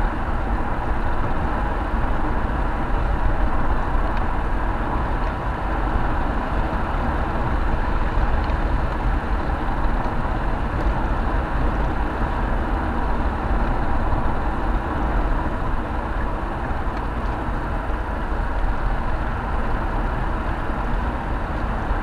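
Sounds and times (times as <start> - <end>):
car interior road noise: 0.0 - 22.0.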